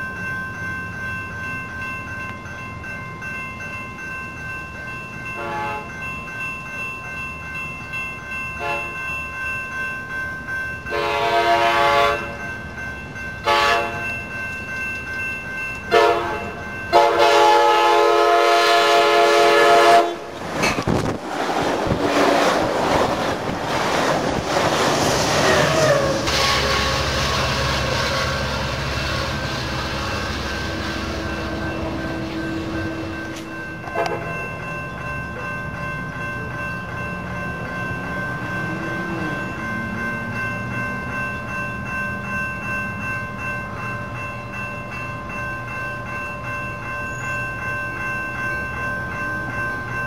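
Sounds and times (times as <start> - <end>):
locomotive drone: 0.0 - 50.0
train passing with rushing rumble: 0.0 - 50.0
train air horn blasts: 5.4 - 5.9, 8.6 - 8.9, 10.9 - 12.4, 13.4 - 14.0, 15.9 - 20.3, 25.4 - 29.5, 30.7 - 34.4.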